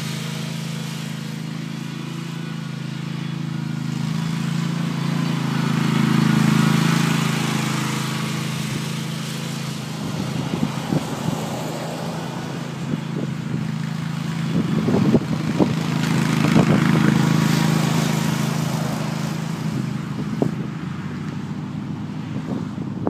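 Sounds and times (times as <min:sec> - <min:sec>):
mower engine passing: 0:00.0 - 0:23.0.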